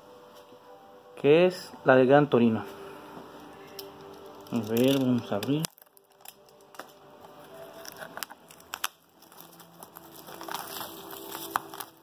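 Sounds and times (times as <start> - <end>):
plastic wrap crinkling: 3.8 - 12.0.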